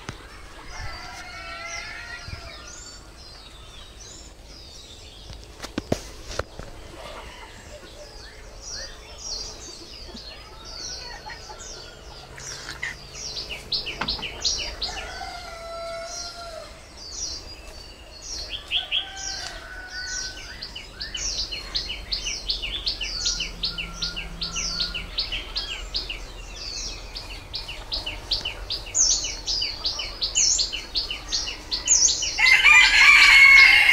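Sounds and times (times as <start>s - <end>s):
birds chirping rapidly: 0.0s - 33.9s
rooster crowing: 0.7s - 3.0s, 14.4s - 16.8s, 18.5s - 20.8s, 23.0s - 25.8s, 32.4s - 33.9s.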